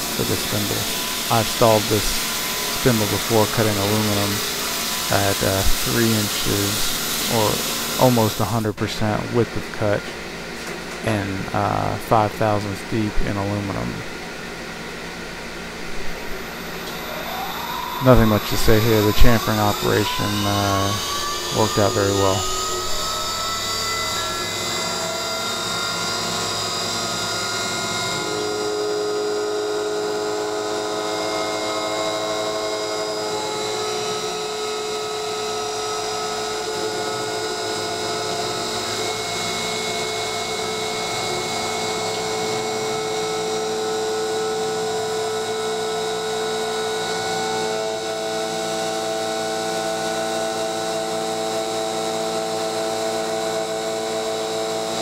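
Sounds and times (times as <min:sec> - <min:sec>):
cutter hiss on metal: 0:00.0 - 0:08.6, 0:16.5 - 0:40.0
spindle motor whine: 0:00.0 - 0:55.0.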